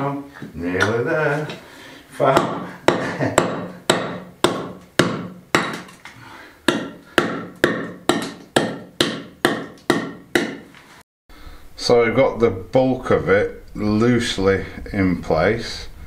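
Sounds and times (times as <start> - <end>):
hammer striking stone: 2.4 - 6.1, 6.7 - 10.7.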